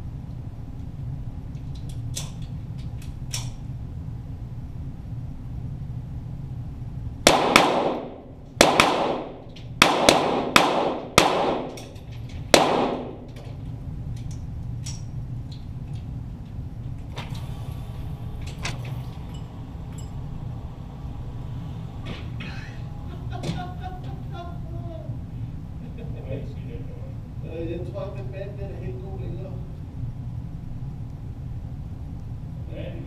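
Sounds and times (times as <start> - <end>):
faint distant gunshots: 7.3 - 11.8, 12.5 - 13.3
pistol shots with echo: 7.3 - 11.9, 12.5 - 13.3.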